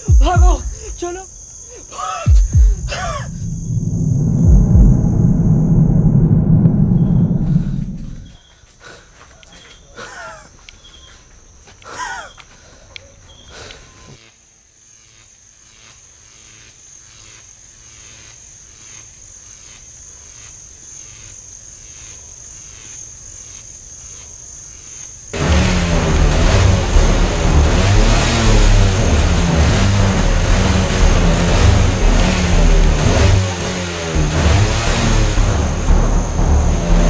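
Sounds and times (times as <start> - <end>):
crickets trilling: 0.0 - 25.4
car engine revving: 2.3 - 8.3, 25.4 - 37.0.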